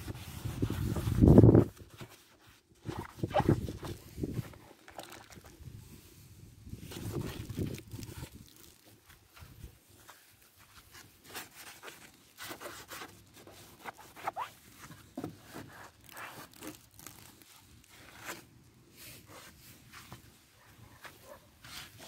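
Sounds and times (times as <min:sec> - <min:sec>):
sponge scrubbing plastic: 0:00.0 - 0:05.6, 0:06.8 - 0:18.4.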